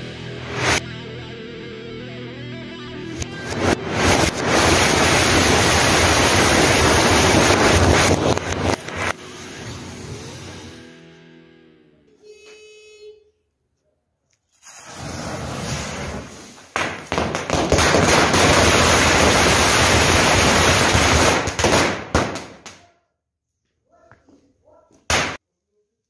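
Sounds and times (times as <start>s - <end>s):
firecrackers banging: 3.2s - 10.7s, 14.6s - 22.8s, 25.1s - 25.4s.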